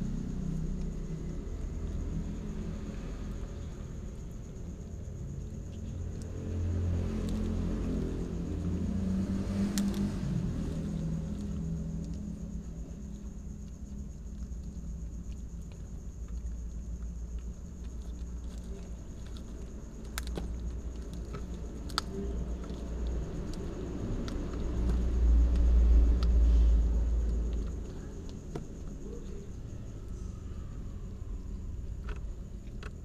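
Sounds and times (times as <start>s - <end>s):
cats chewing: 9.9s - 29.3s.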